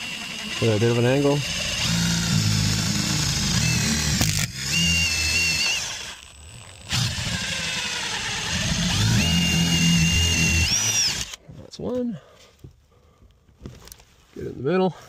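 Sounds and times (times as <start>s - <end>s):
cordless drill boring into wood: 0.0s - 11.4s.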